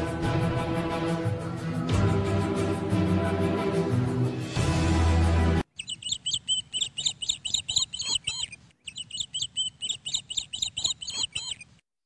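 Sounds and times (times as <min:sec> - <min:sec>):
birds chirping: 0:05.7 - 0:11.8.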